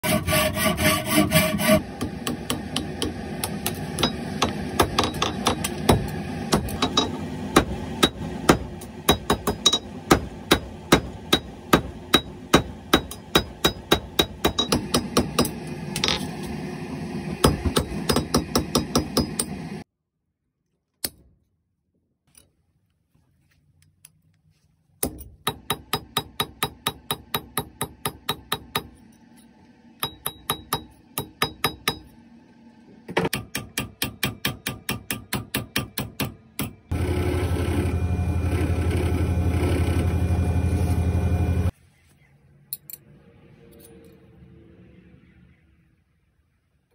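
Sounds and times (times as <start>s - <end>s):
hacksaw cutting copper pipe: 0.0s - 16.3s, 17.4s - 19.7s
hammer striking metal on anvil: 2.0s - 16.2s, 17.4s - 19.7s, 25.0s - 29.0s, 30.0s - 32.2s, 33.2s - 36.8s.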